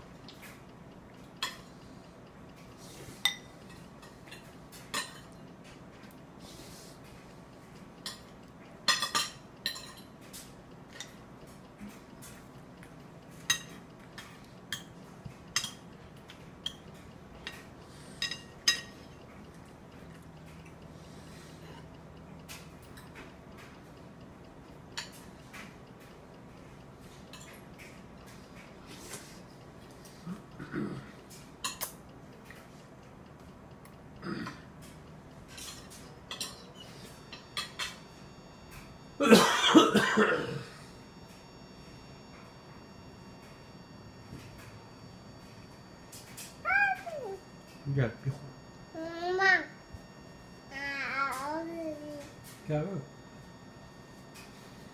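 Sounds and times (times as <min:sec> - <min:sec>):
toddler coughing: 0:30.6 - 0:31.1, 0:34.2 - 0:34.6, 0:39.2 - 0:40.7.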